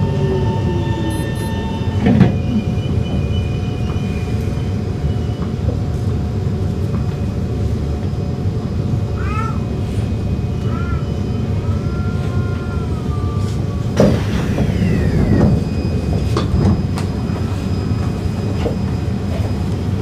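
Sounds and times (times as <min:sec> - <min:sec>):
train running rumble: 0:00.0 - 0:20.0
train clunk: 0:00.4 - 0:06.1, 0:13.5 - 0:20.0.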